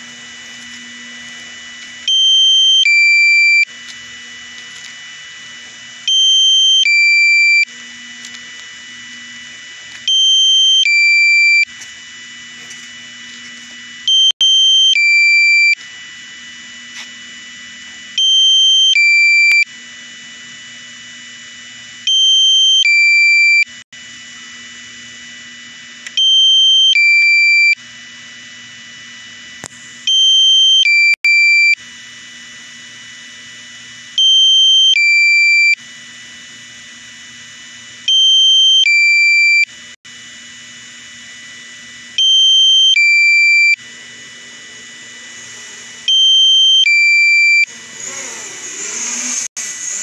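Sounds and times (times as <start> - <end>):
two-tone alarm beeping: 1.7 - 3.8, 4.8 - 8.4, 9.9 - 11.8, 13.4 - 15.9, 18.1 - 19.8, 22.0 - 23.8, 26.1 - 27.8, 30.0 - 31.8, 34.1 - 35.9, 38.0 - 39.8, 42.1 - 50.0.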